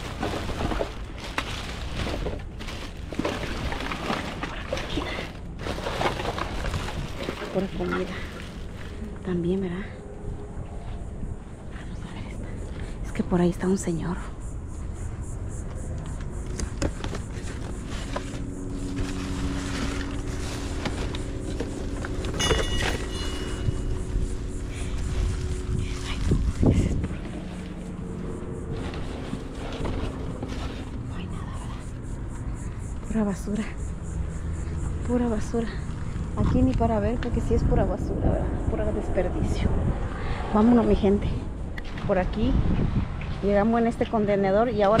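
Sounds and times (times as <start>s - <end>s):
plastic bags rustling and crinkling: 0.0s - 9.2s, 16.8s - 31.1s
mechanical hum and rumble: 0.0s - 45.0s.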